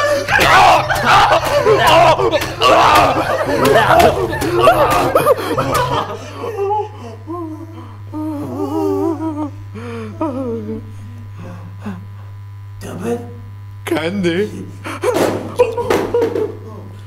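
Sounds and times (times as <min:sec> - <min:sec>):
low electrical hum: 0:00.0 - 0:17.0
person humming a wavering tune: 0:01.4 - 0:12.3.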